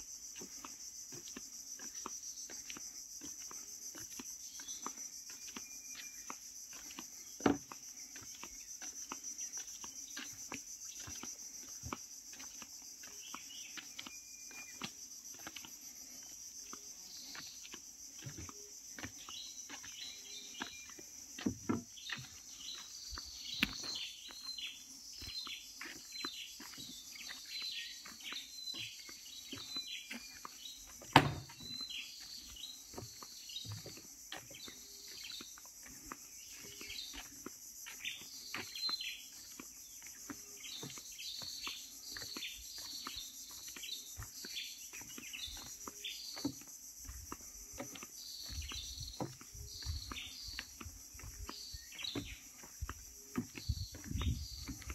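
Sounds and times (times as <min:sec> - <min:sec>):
insect drone: 0:00.0 - 0:54.9
bird chirping: 0:12.3 - 0:46.5, 0:47.7 - 0:54.9
sharp knock: 0:31.2 - 0:31.4.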